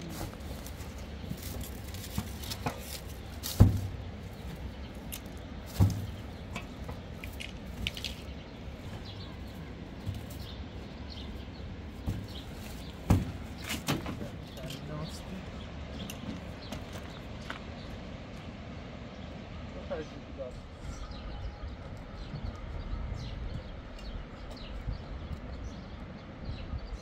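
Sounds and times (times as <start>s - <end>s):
light clatter and rustling: 0.0s - 11.2s, 11.9s - 17.7s
knocks in metal truck bed: 3.5s - 4.0s, 5.7s - 6.7s, 13.1s - 14.3s.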